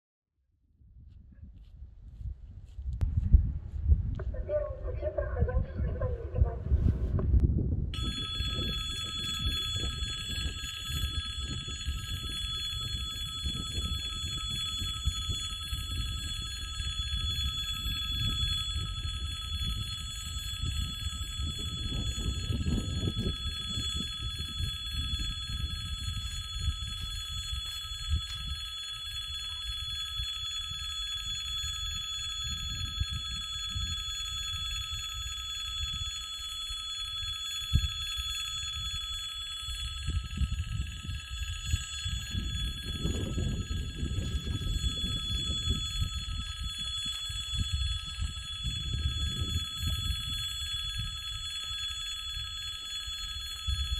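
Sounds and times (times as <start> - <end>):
low rumble: 0.6 - 8.0
level crossing warning bell: 8.0 - 53.9.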